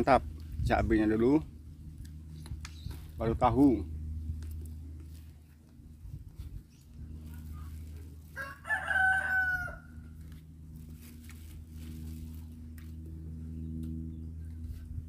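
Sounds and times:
rooster crowing: 8.3 - 10.1.

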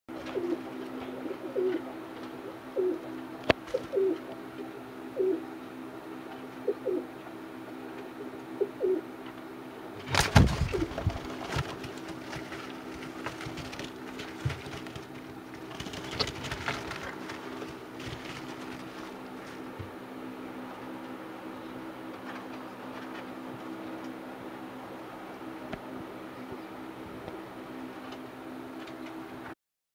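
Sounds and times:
pigeons cooing: 0.1 - 24.1
low hum: 0.1 - 29.5
wings flapping: 0.2 - 4.3, 10.0 - 20.0
rustling: 10.0 - 20.0.

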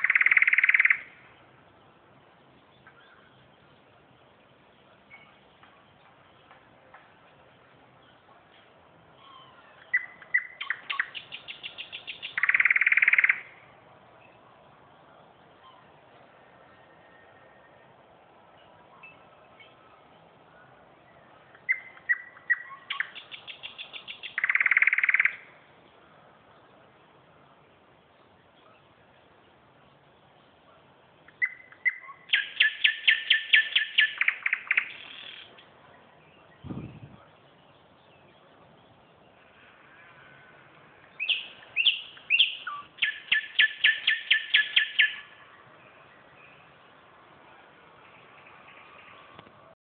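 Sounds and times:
songbird singing with trill: 0.0 - 6.6, 8.0 - 14.4, 16.7 - 20.3, 21.0 - 26.0, 31.2 - 39.4, 41.0 - 46.8
low thump: 36.6 - 37.1.

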